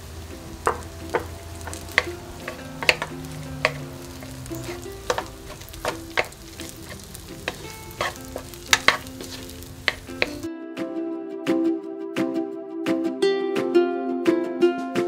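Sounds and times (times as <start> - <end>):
rice frying sizzle: 0.0 - 10.5
spatula scraping and knocking wok: 0.0 - 10.5.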